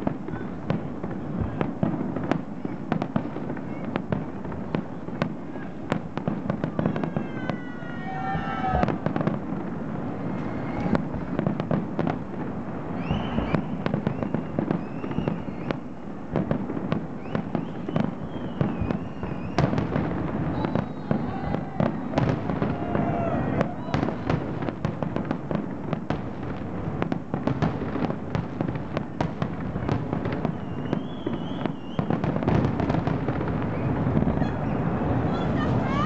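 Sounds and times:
fireworks bursting: 0.0s - 36.0s
high firework whistling: 5.0s - 11.7s, 12.8s - 25.3s, 28.7s - 36.0s.

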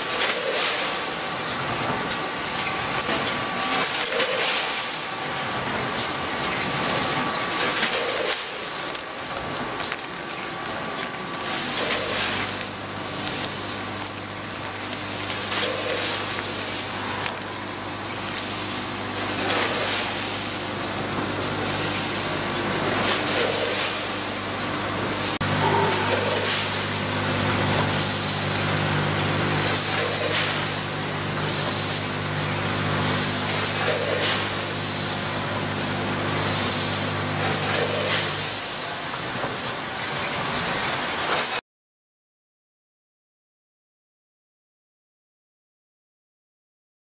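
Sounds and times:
machine hiss and clunk: 0.0s - 10.0s, 11.4s - 17.4s, 18.1s - 41.6s
machine low hum: 24.0s - 37.8s.

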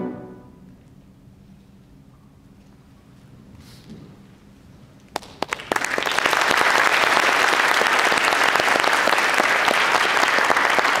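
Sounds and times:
audience applause: 5.2s - 11.0s.

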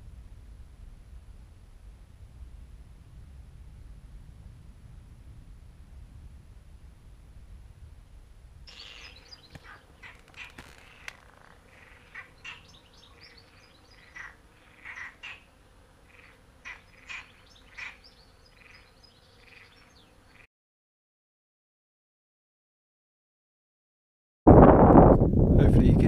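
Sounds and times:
birds chirping: 8.7s - 20.5s.

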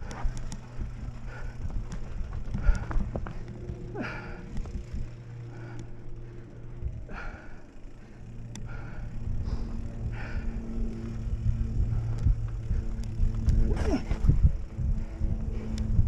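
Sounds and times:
sharp clicks: 0.0s - 0.7s, 8.4s - 8.7s
bike rattling: 0.0s - 16.0s
bike tyres on dirt and stones: 0.0s - 16.0s
low buzz: 0.0s - 16.0s.

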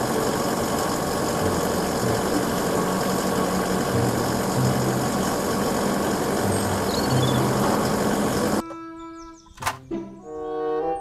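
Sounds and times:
low hum: 0.0s - 8.6s
truck engine running: 0.0s - 8.6s.

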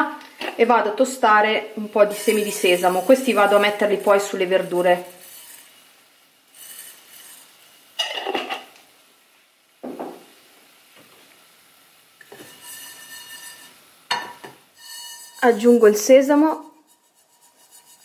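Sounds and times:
pan and glass clinking: 12.2s - 15.7s.

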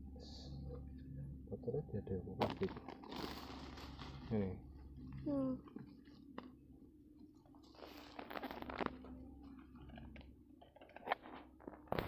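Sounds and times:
crunching and rustling on dry grass: 2.5s - 4.5s, 7.6s - 9.1s.

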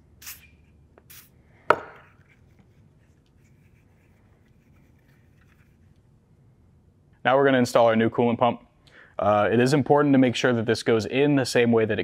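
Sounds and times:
aerosol can hissing: 0.2s - 1.4s.

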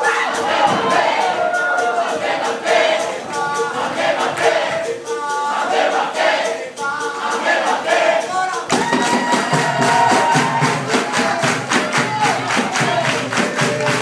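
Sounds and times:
group singing: 0.0s - 14.0s
hand drum beat: 0.0s - 14.0s
sharp percussion strokes: 0.0s - 14.0s
tambourine jingles: 0.0s - 14.0s
hand claps: 8.7s - 14.0s.

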